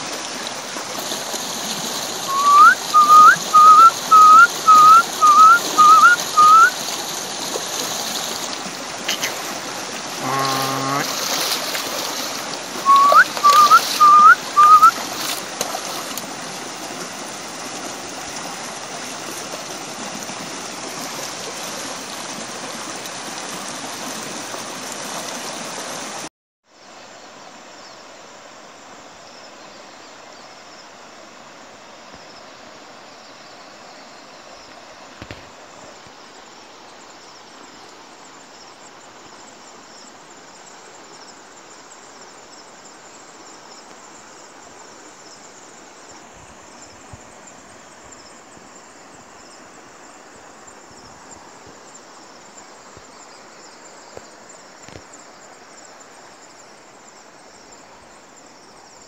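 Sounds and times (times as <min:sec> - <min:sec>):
outdoor hiss: 0:00.0 - 0:59.0
insects chirring: 0:02.0 - 0:18.1, 0:32.1 - 0:59.0.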